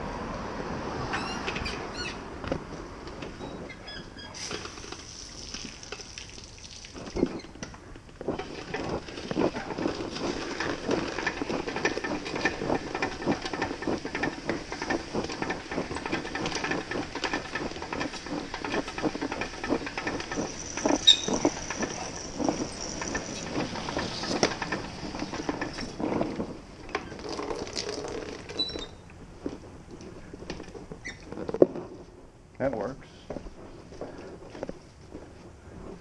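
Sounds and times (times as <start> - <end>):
garden hose spraying water: 4.4 - 28.8.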